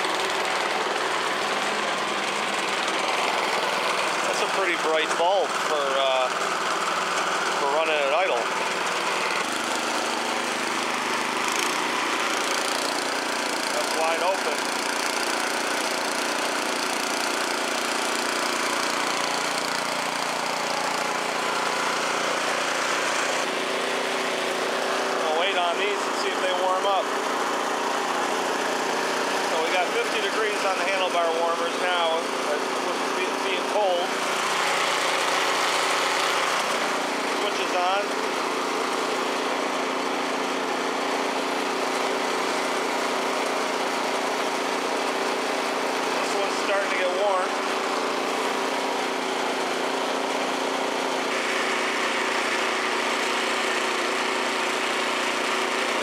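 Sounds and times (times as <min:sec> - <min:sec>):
snowblower engine running: 0:00.0 - 0:56.0.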